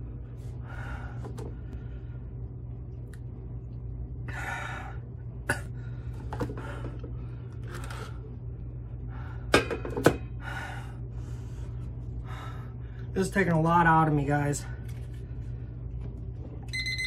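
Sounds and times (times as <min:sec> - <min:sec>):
low steady hum: 0:00.0 - 0:17.0
man breathing heavily through mouth: 0:00.4 - 0:02.3, 0:10.3 - 0:13.1.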